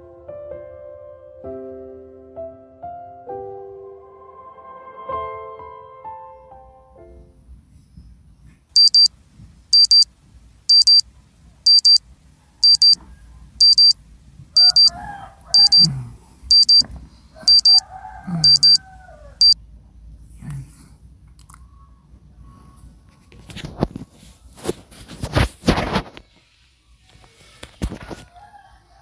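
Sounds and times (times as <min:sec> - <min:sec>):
alarm clock beeping: 0:08.8 - 0:09.1, 0:09.8 - 0:10.1, 0:10.7 - 0:11.0, 0:11.7 - 0:12.0, 0:12.6 - 0:13.0, 0:13.6 - 0:14.0, 0:14.6 - 0:14.9, 0:15.6 - 0:15.9, 0:16.5 - 0:16.8, 0:17.5 - 0:17.8, 0:18.4 - 0:18.8
man groaning drowsily: 0:15.9 - 0:16.4.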